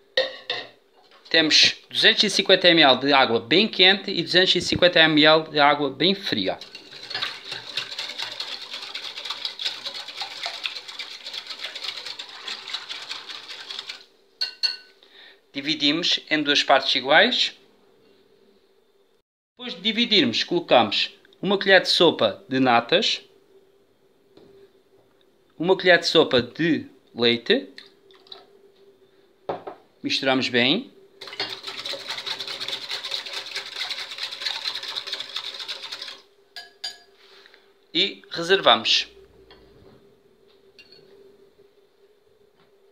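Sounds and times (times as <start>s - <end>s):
whisk clicking against glass bowl: 6.6s - 14.8s, 31.2s - 36.2s.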